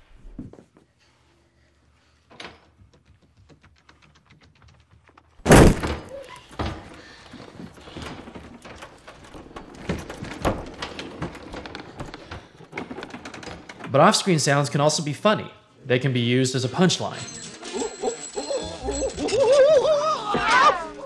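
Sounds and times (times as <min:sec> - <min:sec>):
loud bang against door: 0:05.5 - 0:06.1.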